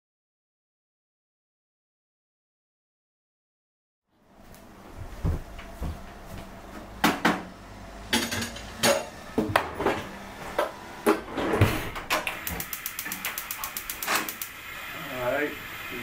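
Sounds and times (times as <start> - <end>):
pans and dishes clinking: 8.1 - 9.2
fast light ticks: 12.4 - 14.6.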